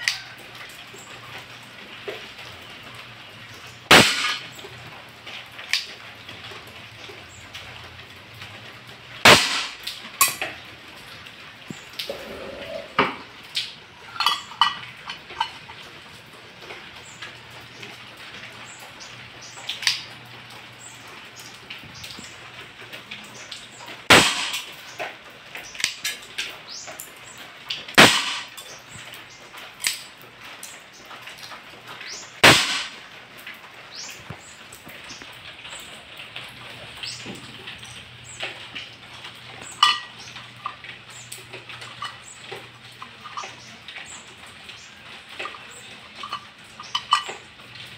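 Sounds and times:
airsoft revolver shots: 3.9s - 4.5s, 9.2s - 10.4s, 24.1s - 24.7s, 28.0s - 28.5s, 32.4s - 33.0s.

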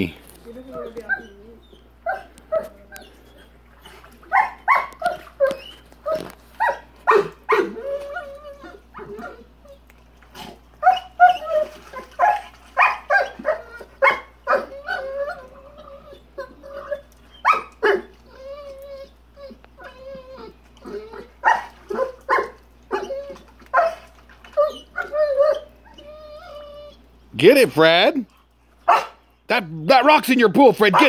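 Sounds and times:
dog barking: 2.0s - 2.7s, 4.3s - 5.3s, 6.6s - 7.8s, 12.1s - 14.7s, 17.5s - 18.1s, 21.4s - 23.1s, 28.8s - 29.2s.

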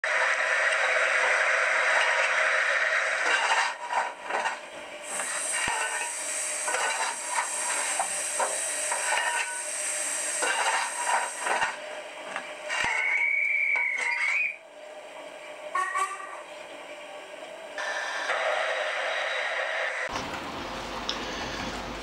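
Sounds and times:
steam hissing: 5.0s - 11.8s.

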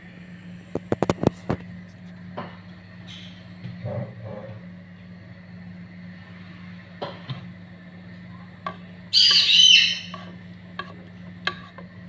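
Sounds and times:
high-pitched chirping call: 9.1s - 10.2s.

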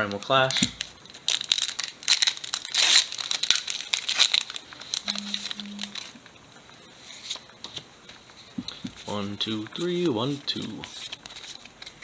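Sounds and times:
foil wrapper crinkling: 0.4s - 6.2s.

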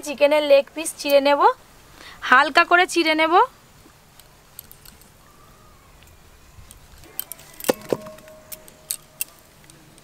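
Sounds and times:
steel bowl ringing: 7.6s - 9.6s.

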